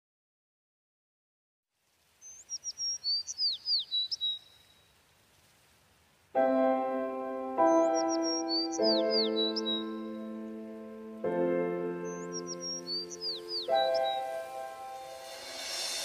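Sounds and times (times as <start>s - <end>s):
falling bird chirps: 2.2s - 5.0s, 7.7s - 10.7s, 12.0s - 16.0s
keyboard music with held chords: 6.4s - 16.0s.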